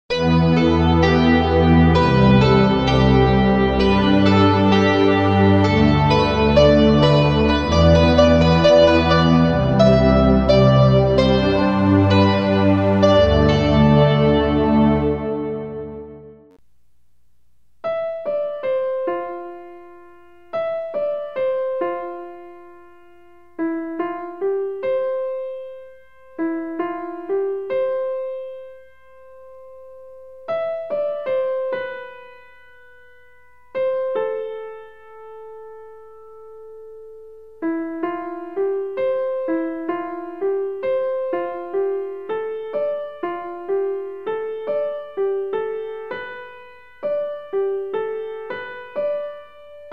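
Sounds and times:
gentle solo piano melody: 0:17.9 - 0:33.0, 0:33.7 - 0:49.9.

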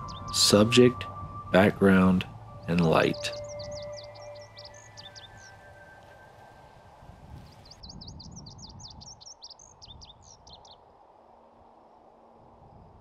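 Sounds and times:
low background rumble: 0:00.0 - 0:07.0
songbird singing: 0:00.0 - 0:11.0.

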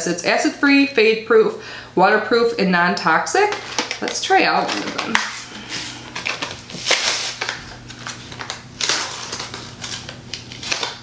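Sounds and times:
packaging crinkling: 0:03.5 - 0:11.0.

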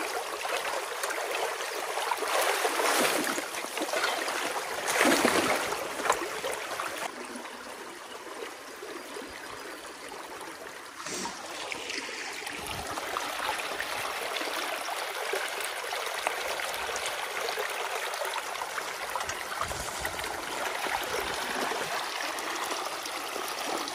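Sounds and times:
rake splashing water: 0:01.9 - 0:07.0, 0:11.0 - 0:13.1.

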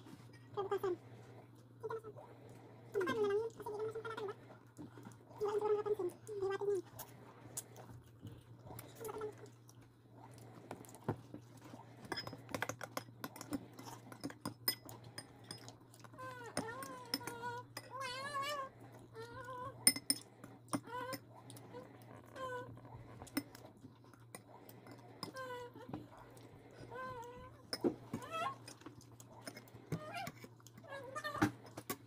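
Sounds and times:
spoons clinking on steel bowls: 0:14.4 - 0:15.6, 0:19.8 - 0:20.2.

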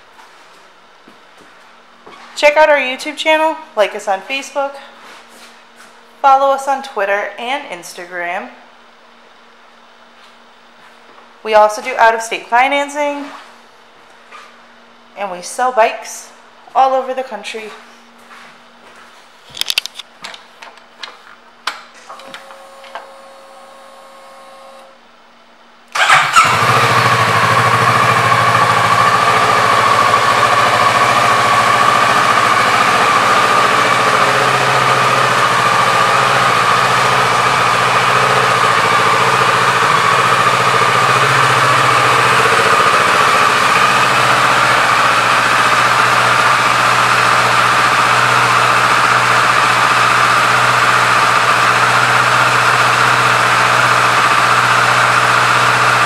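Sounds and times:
faint electrical hum: 0:00.0 - 0:26.0
motorcycle engine starting and idling: 0:25.9 - 0:56.0.

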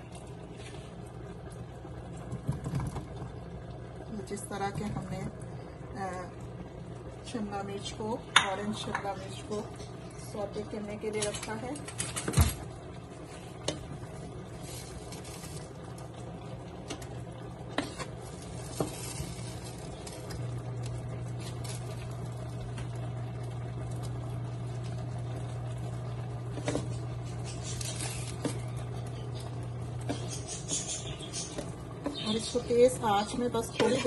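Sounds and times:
low steady hum: 0:00.0 - 0:34.0
peppers sizzling in frying pan: 0:07.2 - 0:34.0.

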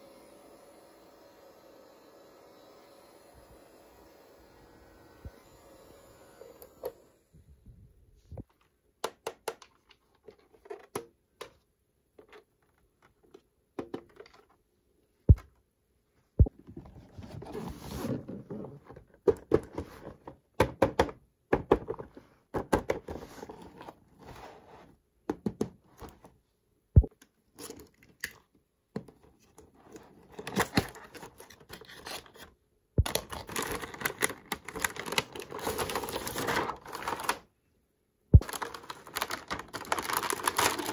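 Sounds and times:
packaging crinkling and tearing: 0:33.0 - 0:37.5, 0:38.4 - 0:40.9.

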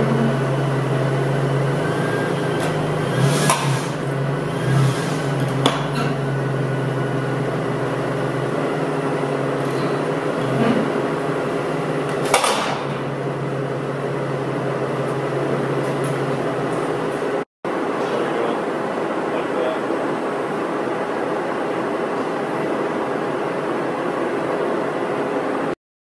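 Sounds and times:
van engine idling: 0:00.0 - 0:17.4
sharp knocks of tyre on wooden frame: 0:12.2 - 0:13.1.

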